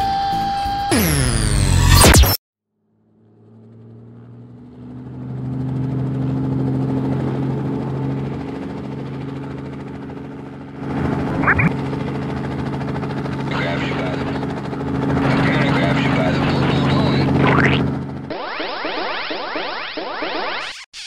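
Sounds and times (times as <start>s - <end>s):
rising swoop: 0.9s - 2.3s, 17.6s - 20.9s
cartoon helicopter hum: 0.9s - 21.0s.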